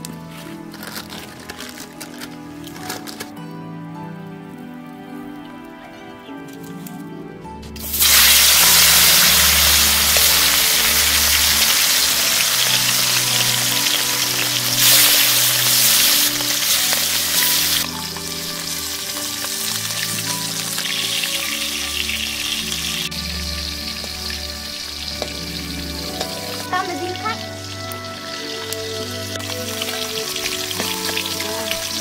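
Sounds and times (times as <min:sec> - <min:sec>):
fish sizzling in hot oil: 0:07.8 - 0:32.0.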